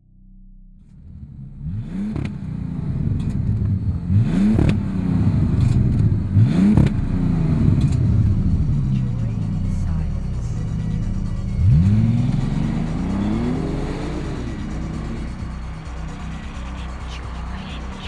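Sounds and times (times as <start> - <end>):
car engine revving: 0.8 - 18.0
exhaust crack: 0.8 - 18.0.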